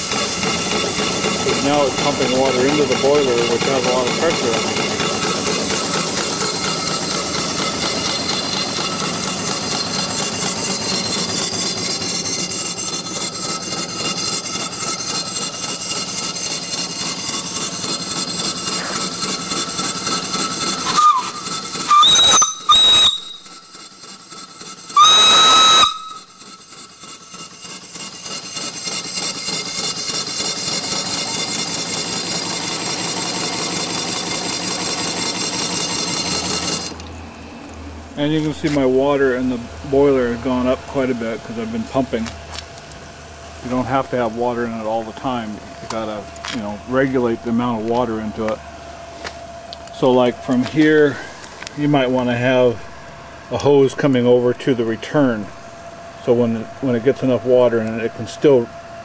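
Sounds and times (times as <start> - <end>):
steam engine running: 0.0 - 59.0
steam whistle toots: 20.4 - 23.9, 24.6 - 28.2.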